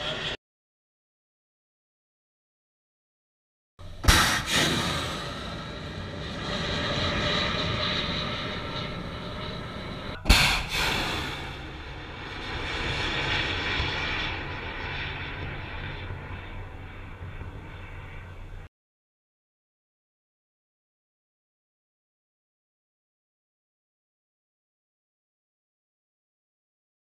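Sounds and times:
sharp missile launch blast: 3.9 - 8.6, 10.2 - 14.5.

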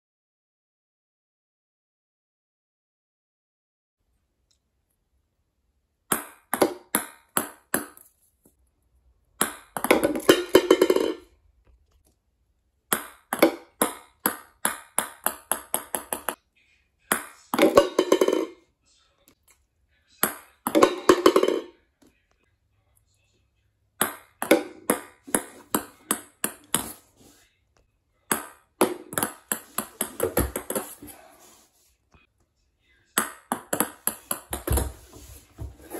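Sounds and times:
ping-pong ball bouncing on wooden floor: 6.1 - 8.0, 9.4 - 11.3, 12.9 - 16.4, 17.1 - 18.6, 20.2 - 21.7, 24.0 - 27.0, 28.3 - 31.0, 33.2 - 35.1.

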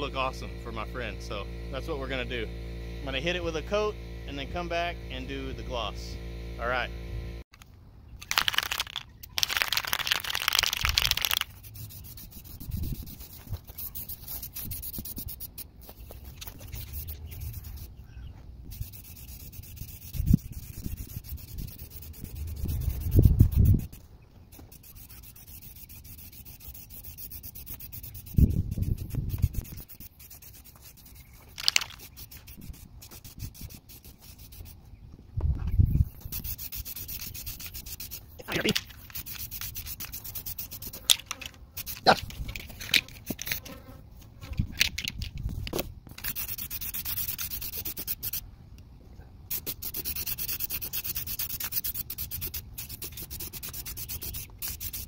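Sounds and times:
aerosol spray can hissing: 8.4 - 16.0, 18.7 - 34.8, 36.2 - 41.1, 46.2 - 48.4, 49.5 - 55.0.

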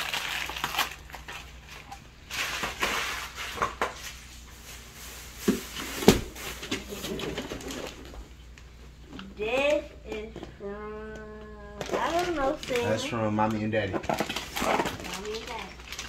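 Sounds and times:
wrapping paper rustling: 0.0 - 8.2, 11.8 - 16.0.

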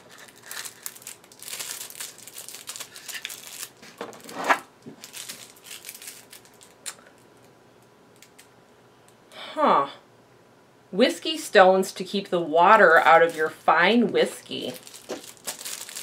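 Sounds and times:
cardboard packaging rustling: 0.0 - 6.8, 14.6 - 16.0.

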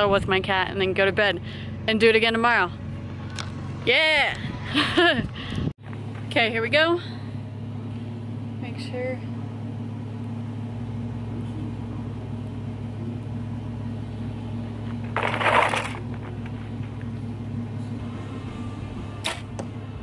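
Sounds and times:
steady low hum: 0.0 - 20.0
bow rustle or scrape: 15.1 - 16.8.

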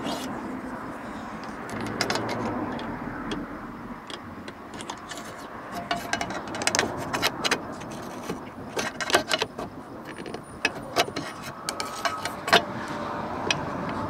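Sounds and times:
fuel door latch clicks and rattles: 1.4 - 12.7.

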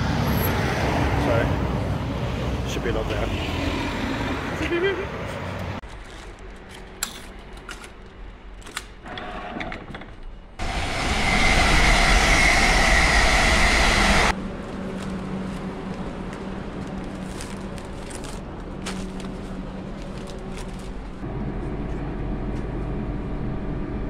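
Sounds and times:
train rumble: 10.5 - 24.0
high whine: 10.6 - 14.6.

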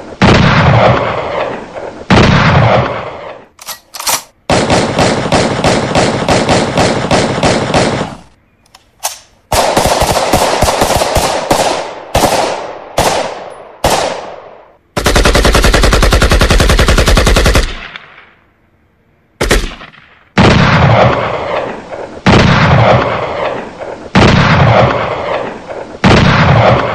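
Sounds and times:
rapid automatic gunfire: 4.5 - 8.2, 9.5 - 14.2, 15.0 - 18.0.

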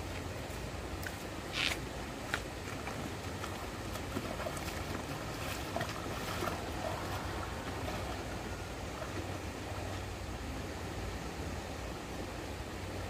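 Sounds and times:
water flowing: 0.0 - 13.0
small splashes: 2.6 - 10.1.

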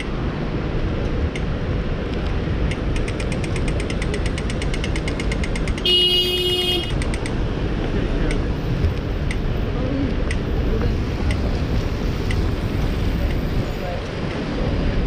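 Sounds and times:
wet street traffic hiss: 0.1 - 15.0
fast even clicking: 2.2 - 5.8, 6.9 - 7.4
car horn: 5.8 - 7.0.

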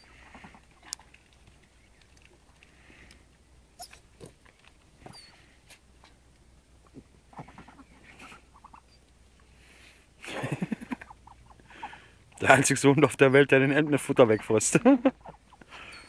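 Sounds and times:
ducks calling softly: 0.0 - 16.0
ducks pecking clicks: 0.1 - 3.4, 4.3 - 5.0.

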